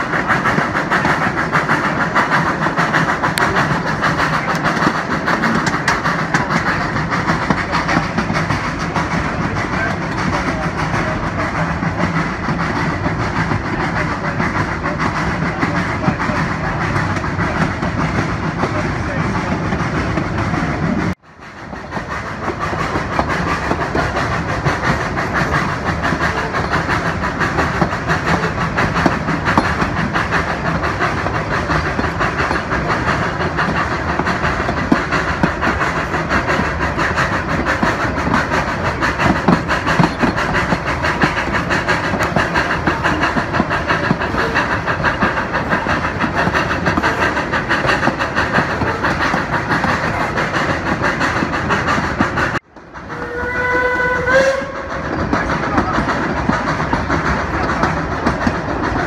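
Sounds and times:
steam locomotive chuffing: 0:00.0 - 0:59.0
train wheels clacking on rails: 0:00.0 - 0:59.0.

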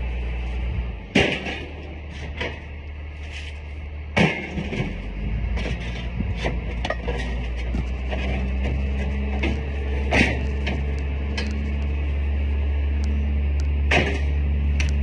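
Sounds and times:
loud metal impacts: 0:01.0 - 0:02.7, 0:04.1 - 0:05.8, 0:06.4 - 0:11.8, 0:13.7 - 0:15.0
scrap metal clanking onto pile: 0:01.1 - 0:03.6, 0:04.2 - 0:11.7, 0:13.9 - 0:14.4.

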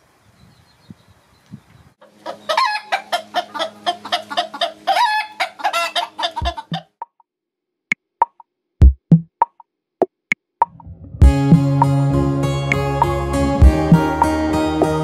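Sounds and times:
chickens clucking and cackling: 0:02.0 - 0:07.0
plucked and knocked music notes: 0:10.6 - 0:15.0.

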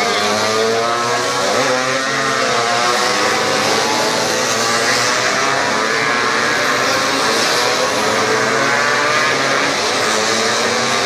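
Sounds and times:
racing motorcycles passing: 0:00.0 - 0:11.0.

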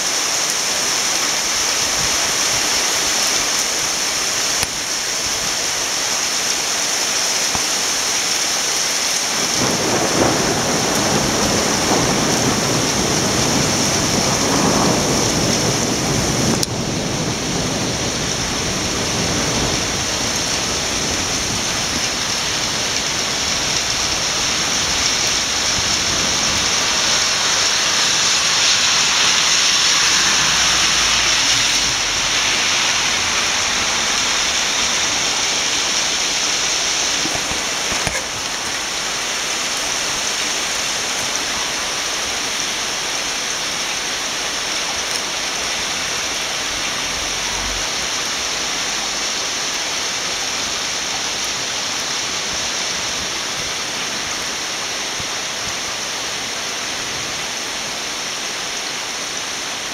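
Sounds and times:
heavy rain rushing: 0:00.0 - 0:59.9.

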